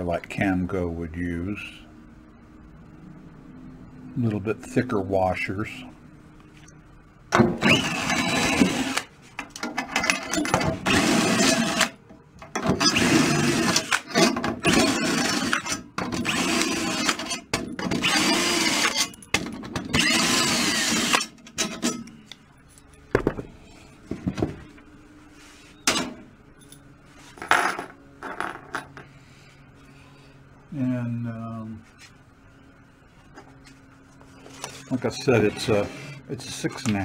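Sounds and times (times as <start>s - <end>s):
cordless drill spinning: 7.6s - 9.1s, 12.8s - 19.1s, 19.9s - 21.3s.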